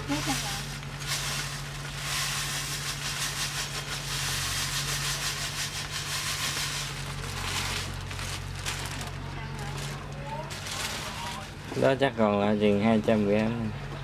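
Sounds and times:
sugar pouring grainy hiss: 0:00.0 - 0:07.4
steady low hum: 0:00.0 - 0:14.0.

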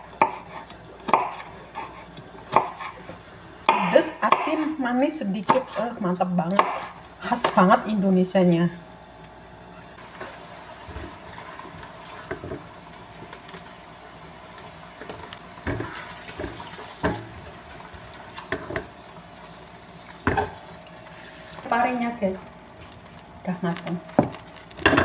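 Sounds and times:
liquid pouring and sloshing: 0:19.9 - 0:21.7.

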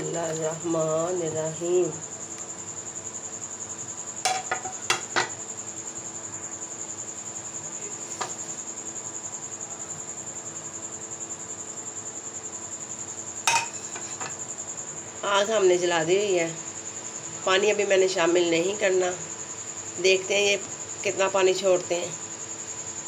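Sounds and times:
cricket chirping: 0:00.0 - 0:23.0
spoon knocking metal pot: 0:04.3 - 0:05.4, 0:13.5 - 0:14.3.

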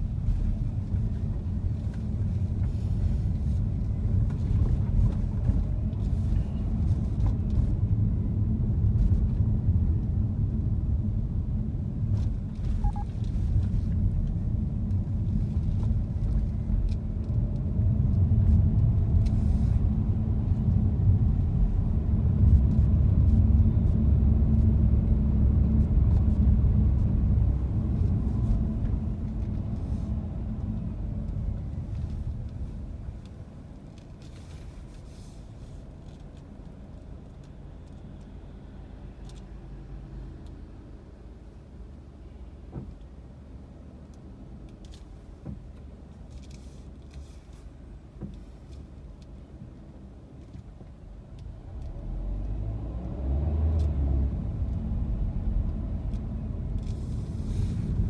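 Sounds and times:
car engine and road rumble: 0:00.0 - 0:58.0.

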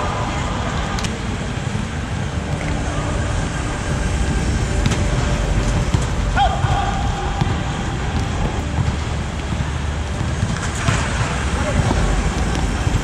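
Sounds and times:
steady low rumble: 0:00.0 - 0:13.0
volleyball hits: 0:04.2 - 0:13.0.

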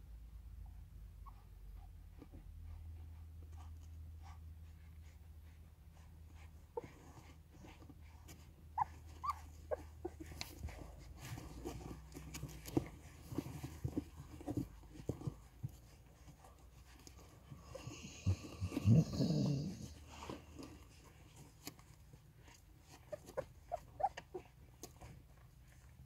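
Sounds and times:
puppies suckling clicks: 0:07.2 - 0:17.8, 0:20.2 - 0:26.0
puppies squeaking: 0:08.8 - 0:10.7, 0:22.4 - 0:24.9.

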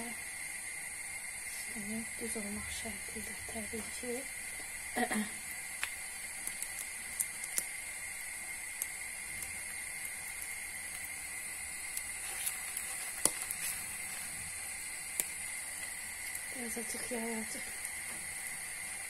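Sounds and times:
batter sizzling in hot oil: 0:00.0 - 0:19.0
small pops and clicks: 0:05.5 - 0:07.8, 0:08.7 - 0:11.2, 0:11.8 - 0:13.8, 0:15.1 - 0:16.5.

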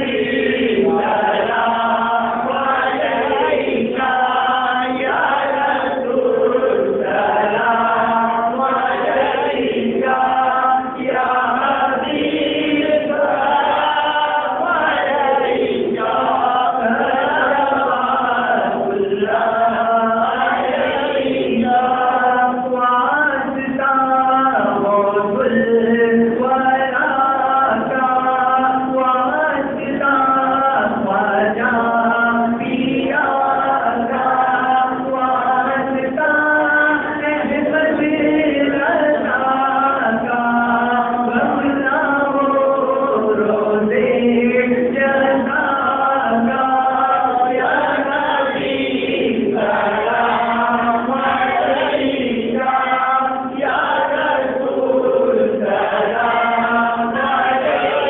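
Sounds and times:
group of men chanting: 0:00.0 - 0:58.0
man singing into a microphone: 0:21.4 - 0:48.7.

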